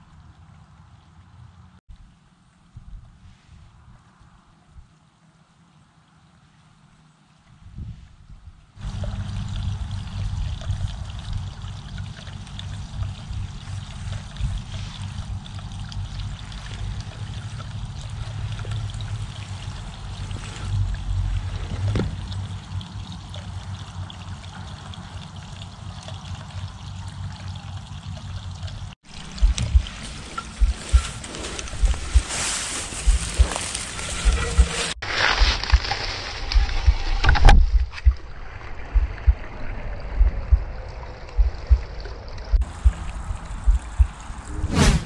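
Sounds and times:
faint outdoor hiss: 0:00.0 - 0:34.8
wind buffeting microphone: 0:07.5 - 0:22.9, 0:29.1 - 0:35.9, 0:36.5 - 0:45.0.

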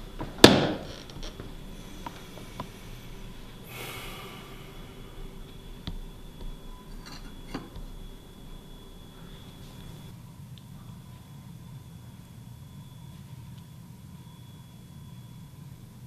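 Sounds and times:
low room hum: 0:00.0 - 0:16.0
person's sharp intake of breath: 0:01.8 - 0:05.7.

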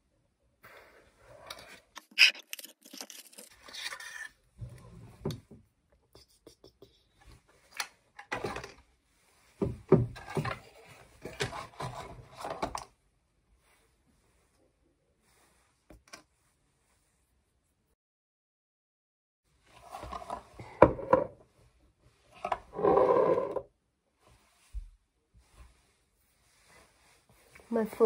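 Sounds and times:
packaging rustling and scraping: 0:01.6 - 0:04.3.

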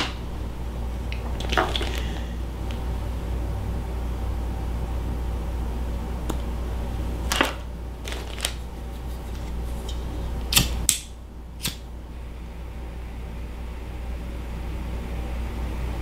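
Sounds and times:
low steady hum: 0:00.0 - 0:16.0
lighter being struck: 0:10.5 - 0:11.8.

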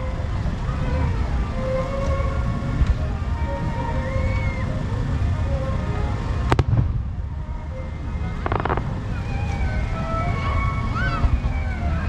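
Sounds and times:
crowd chatter: 0:00.0 - 0:12.0
low rumble: 0:00.0 - 0:12.0
firework bang: 0:06.5 - 0:07.0, 0:08.4 - 0:08.9
firework crackling: 0:08.4 - 0:09.3.

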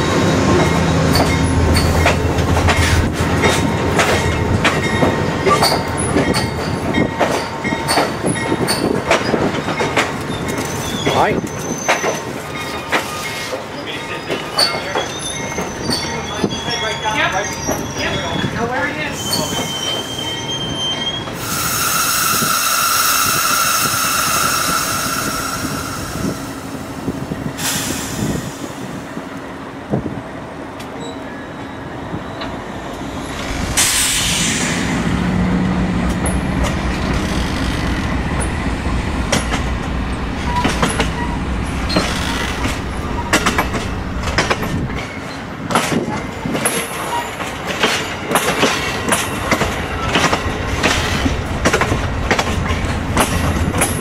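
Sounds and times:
train rumble: 0:00.0 - 0:19.7, 0:21.2 - 0:31.0, 0:31.9 - 0:54.0
train wheels squealing: 0:00.6 - 0:29.0.

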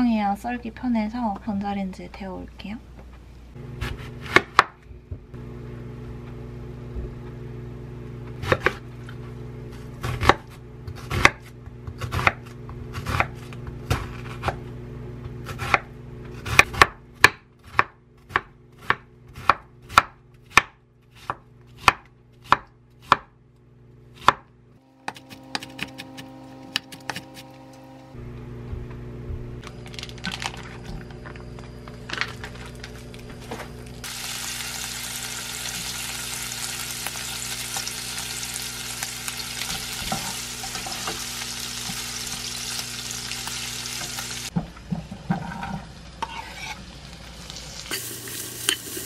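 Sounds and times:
steady low hum: 0:00.0 - 0:17.2, 0:22.2 - 0:35.8
knife chopping on wooden board: 0:03.8 - 0:04.8, 0:08.4 - 0:08.8, 0:10.0 - 0:14.6, 0:15.4 - 0:23.3, 0:24.2 - 0:27.5.

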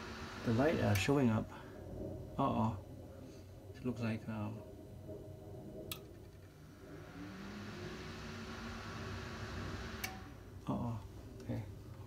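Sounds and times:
computer fans whirring: 0:00.0 - 0:12.0.

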